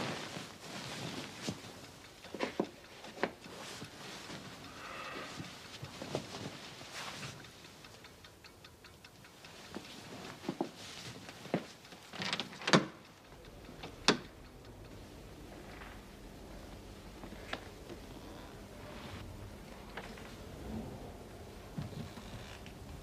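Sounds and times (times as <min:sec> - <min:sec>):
cloth rustling: 0:00.0 - 0:04.7, 0:05.3 - 0:07.7, 0:09.6 - 0:12.2
low steady hum: 0:13.1 - 0:23.0.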